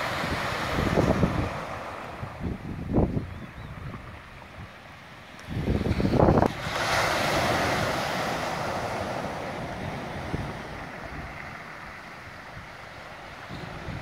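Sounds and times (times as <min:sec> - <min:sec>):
sea wave breaking on shore: 0:00.0 - 0:03.0, 0:05.3 - 0:14.0
wind rumble on microphone: 0:00.0 - 0:14.0.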